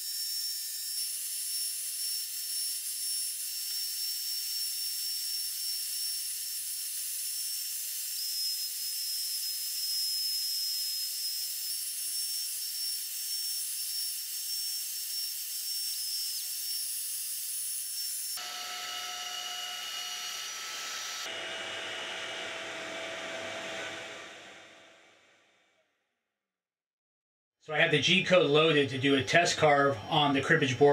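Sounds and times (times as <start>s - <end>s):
router whining: 0.0s - 25.3s
vacuum hissing: 20.9s - 25.2s.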